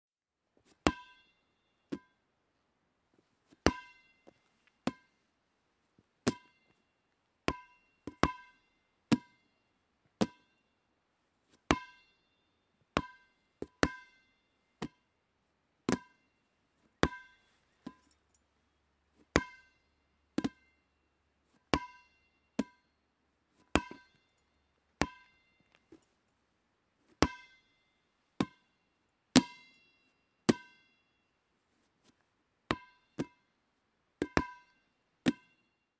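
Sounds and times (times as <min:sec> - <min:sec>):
rubber ball bouncing: 0:03.6 - 0:04.0, 0:06.2 - 0:06.5, 0:07.5 - 0:08.5, 0:10.2 - 0:10.5, 0:13.0 - 0:14.1, 0:15.9 - 0:16.2, 0:19.3 - 0:19.6, 0:20.4 - 0:20.7, 0:22.6 - 0:22.8, 0:23.7 - 0:24.2, 0:25.0 - 0:25.3, 0:28.4 - 0:28.6, 0:32.7 - 0:33.4, 0:34.2 - 0:34.7, 0:35.3 - 0:35.5.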